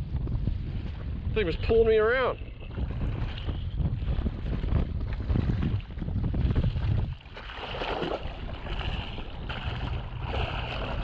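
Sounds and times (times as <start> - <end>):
water splashing against hull: 0.0 - 11.0
wind buffeting microphone: 0.0 - 11.0.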